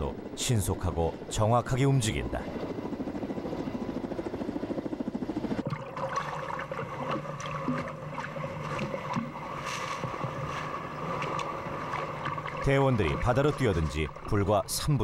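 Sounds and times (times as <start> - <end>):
helicopter rotor beating: 0.0 - 15.0
sea water splashing and sloshing: 5.5 - 15.0.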